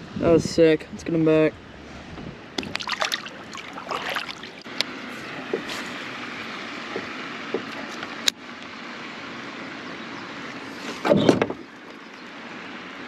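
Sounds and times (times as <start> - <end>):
fish splash: 2.6 - 4.7.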